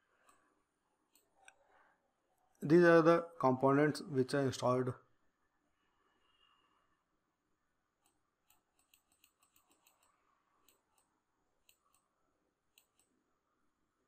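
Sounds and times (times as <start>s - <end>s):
computer mouse clicks: 1.1s - 1.6s, 8.0s - 12.1s, 12.7s - 13.2s.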